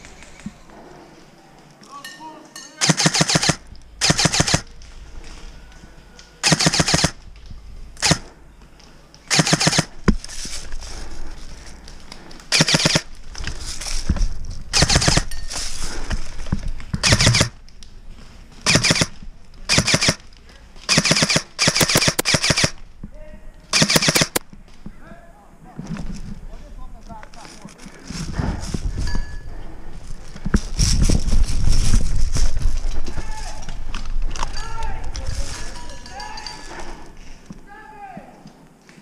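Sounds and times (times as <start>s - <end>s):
airsoft guns firing bursts: 2.8s - 4.7s, 6.4s - 7.2s, 8.0s - 8.3s, 9.3s - 10.0s, 12.5s - 13.1s, 14.7s - 15.3s, 17.0s - 17.6s, 18.6s - 20.2s, 20.9s - 22.8s, 23.7s - 24.4s.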